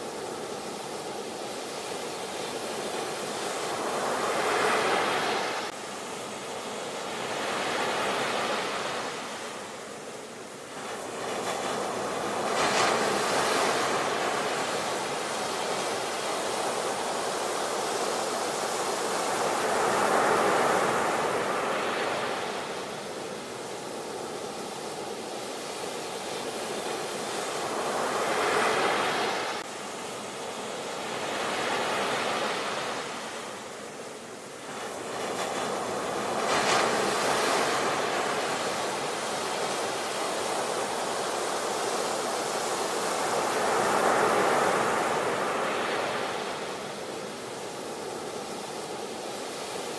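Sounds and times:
ocean surf washing on beach: 0.0 - 49.9.

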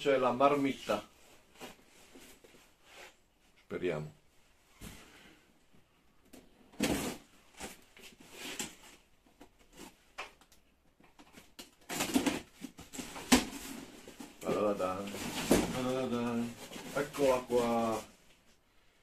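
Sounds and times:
cardboard parcel rustling: 11.1 - 18.5.

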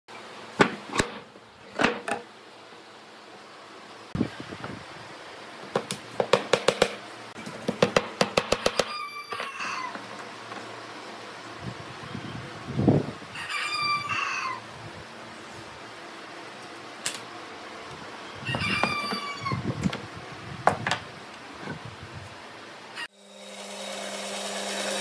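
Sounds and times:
rooster crowing: 8.7 - 10.0, 13.3 - 14.7, 18.4 - 19.7.

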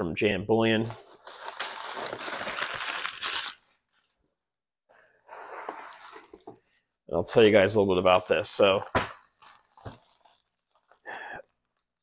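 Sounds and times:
packing paper rustling and crumpling: 0.9 - 4.1, 8.1 - 12.0.

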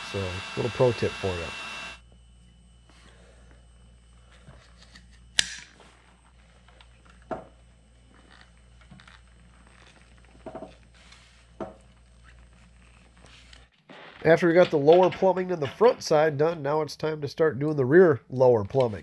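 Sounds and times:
low steady hum: 0.0 - 13.7.

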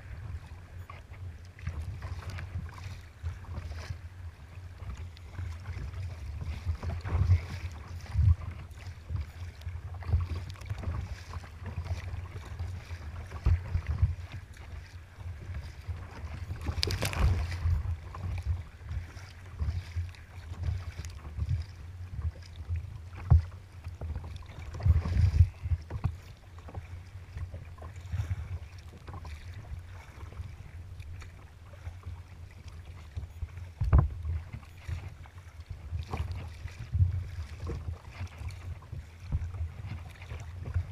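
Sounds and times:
wind buffeting microphone: 0.0 - 31.9
waves slapping against hull: 0.0 - 40.9.

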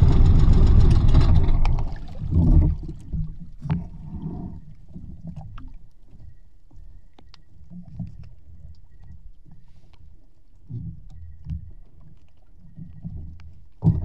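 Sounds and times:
boat engine running: 0.0 - 3.0
low rumble from water and hull: 0.0 - 14.0
faint clicks and knocks: 5.3 - 14.0.

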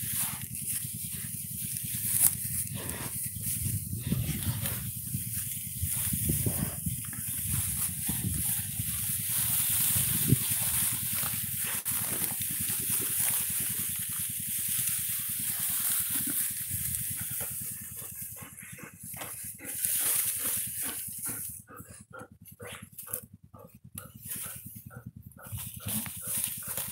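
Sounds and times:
dry grass rustling: 0.0 - 26.9
dog panting: 17.0 - 26.9.

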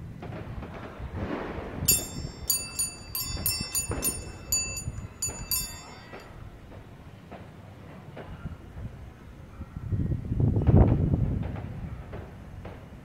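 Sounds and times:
bright ringing chime notes: 1.9 - 6.3.

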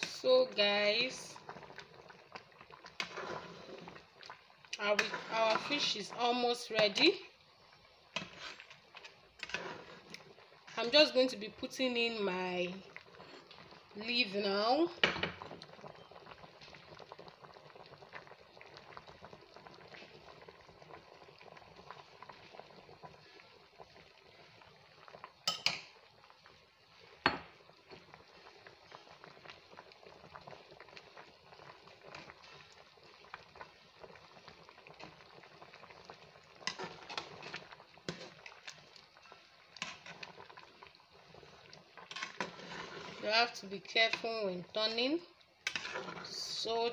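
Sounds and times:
soup bubbling in a pot: 0.0 - 46.9.

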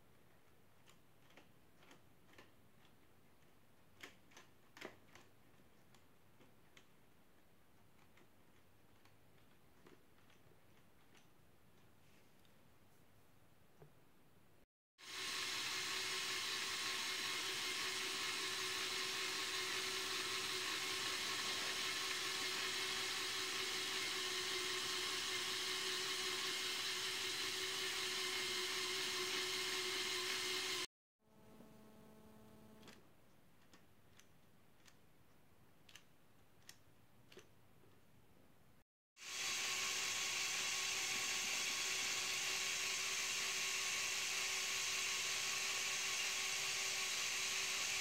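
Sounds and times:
toy electric motor and gears whirring: 15.0 - 30.9, 39.2 - 48.0
faint plastic clicks: 32.8 - 38.1.

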